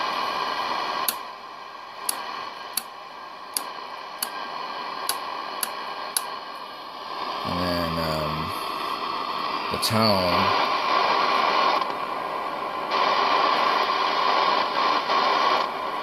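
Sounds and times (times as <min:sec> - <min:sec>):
radio static hiss: 0:00.0 - 0:16.0
switch clicks: 0:02.1 - 0:02.9, 0:03.6 - 0:04.4, 0:05.1 - 0:06.3.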